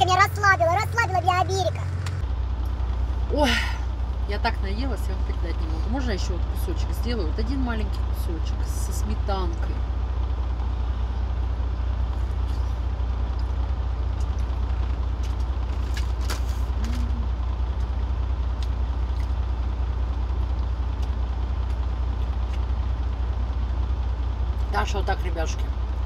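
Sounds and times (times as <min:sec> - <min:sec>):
truck diesel engine idling: 0:00.0 - 0:26.0.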